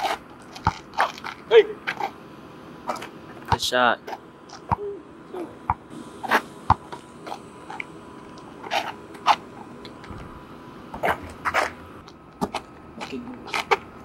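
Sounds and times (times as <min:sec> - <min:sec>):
basketball bouncing: 0:00.1 - 0:01.3, 0:06.7 - 0:07.0.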